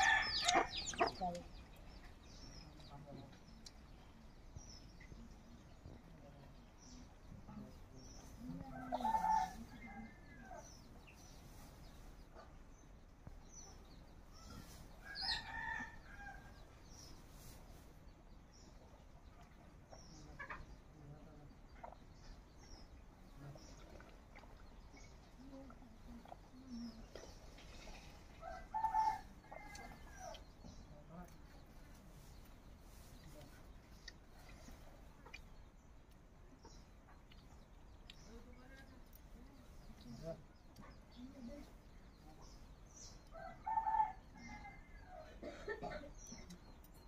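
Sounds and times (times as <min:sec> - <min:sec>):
chickens clucking and calling: 0:00.0 - 0:02.2.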